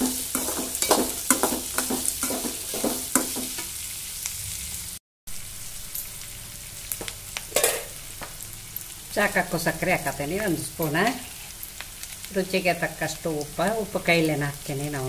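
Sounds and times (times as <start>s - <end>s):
spatula scraping metal pan: 0.0s - 3.6s
food sizzling in oil: 0.0s - 15.0s.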